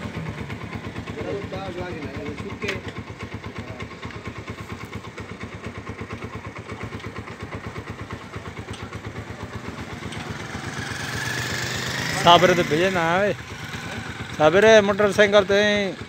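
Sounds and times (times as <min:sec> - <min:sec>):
motorcycle engine idling: 0:00.0 - 0:16.0.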